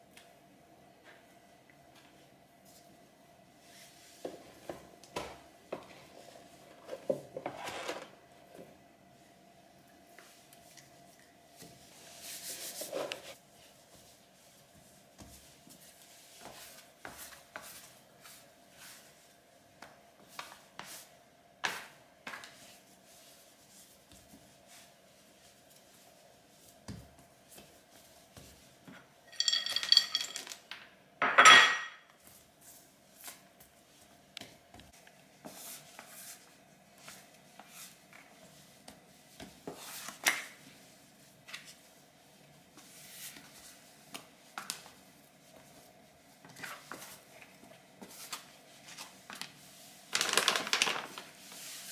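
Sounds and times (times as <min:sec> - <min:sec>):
glass bowl clinking: 0:29.3 - 0:30.6, 0:31.3 - 0:32.0.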